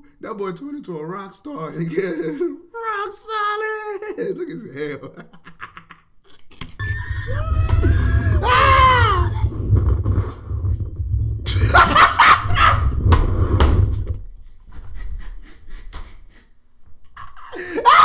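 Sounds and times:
riders screaming: 6.8s - 9.5s.

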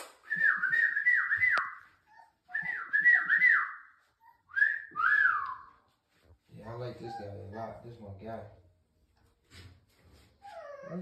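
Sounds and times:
dog whining: 1.9s - 5.0s, 6.7s - 7.8s, 10.3s - 11.0s.

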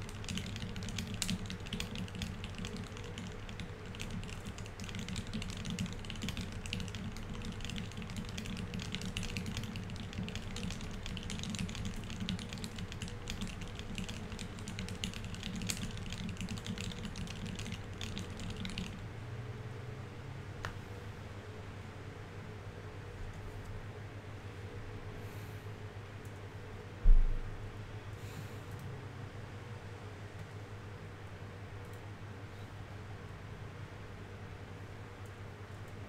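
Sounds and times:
fast typing on mechanical keyboard: 0.0s - 19.0s.

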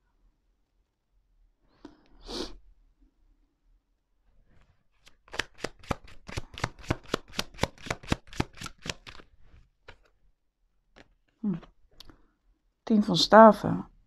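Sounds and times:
faint card clicks: 5.0s - 9.2s
cards being shuffled: 5.0s - 10.2s.

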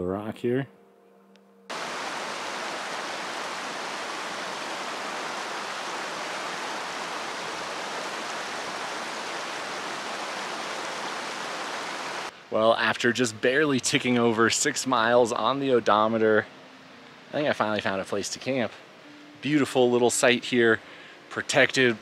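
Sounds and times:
steady rushing noise: 1.7s - 12.6s.

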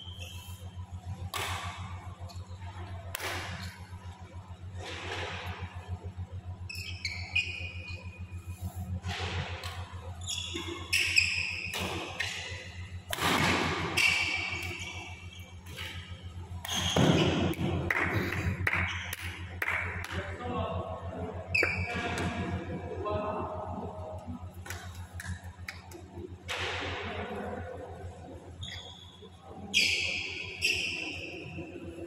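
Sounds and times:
steady low hum: 0.0s - 32.0s
racket hitting shuttlecock: 1.2s - 1.9s, 3.1s - 3.9s, 10.6s - 14.8s
shoes squeaking on court: 6.6s - 8.9s, 10.0s - 12.8s, 21.5s - 22.5s.

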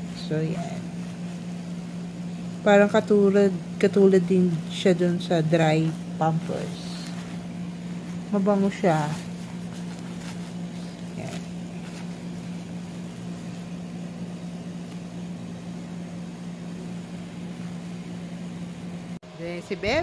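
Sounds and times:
appliance humming: 0.0s - 20.0s
diaper rustling: 3.9s - 15.1s.

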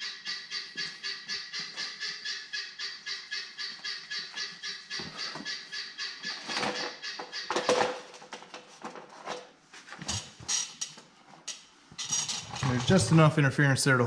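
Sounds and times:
guinea fowl calling: 0.0s - 8.0s.

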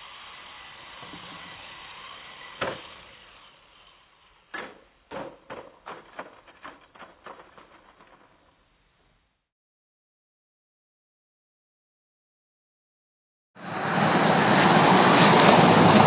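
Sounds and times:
quadcopter motors whining: 0.0s - 4.8s, 13.6s - 16.0s
sharp clack: 4.5s - 8.6s.

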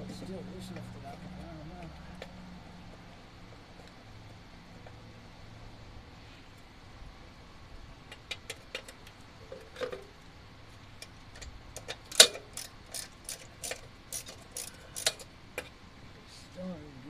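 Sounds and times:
ratchet wrench clicking: 11.8s - 15.7s.

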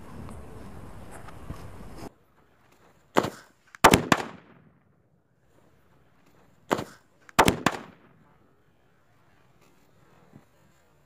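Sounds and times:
firecracker bangs echoing: 3.2s - 4.8s, 6.7s - 8.2s.

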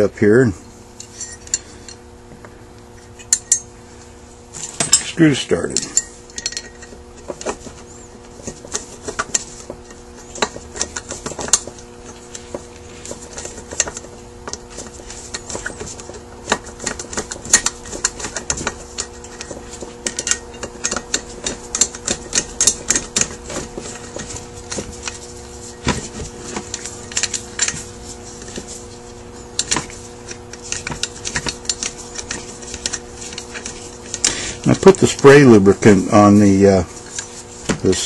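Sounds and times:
screwdriver clicking and scraping metal: 8.4s - 36.0s.

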